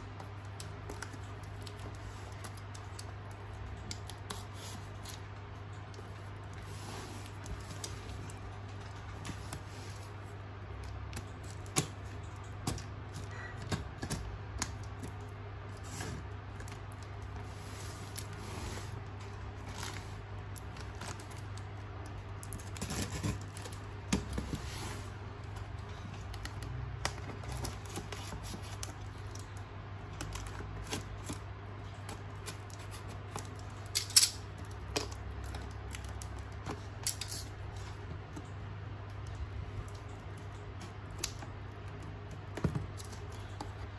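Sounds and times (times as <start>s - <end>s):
steady low hum: 0.0s - 43.9s
scissors snipping packaging: 19.7s - 24.5s.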